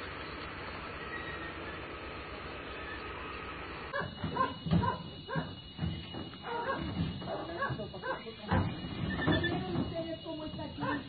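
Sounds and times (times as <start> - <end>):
steady background hum: 0.0 - 11.0
dogs barking and yelping: 3.9 - 5.6, 6.4 - 8.3, 10.8 - 11.0.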